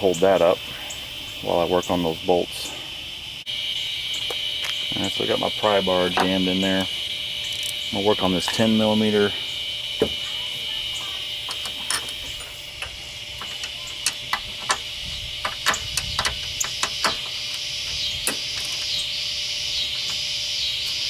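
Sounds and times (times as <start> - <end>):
insect chorus: 0.0 - 21.0.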